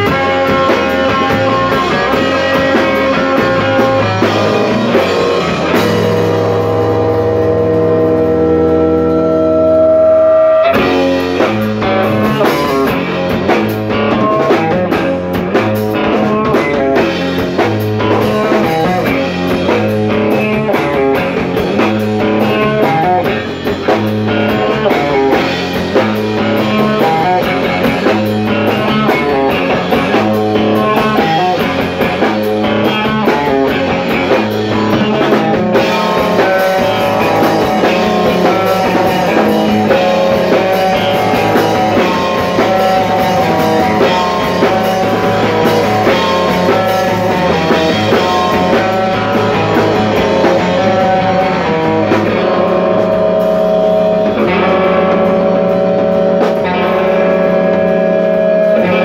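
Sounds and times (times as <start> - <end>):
amplified electric guitar: 0.0 - 59.0
drum kit with cymbals: 0.0 - 59.0.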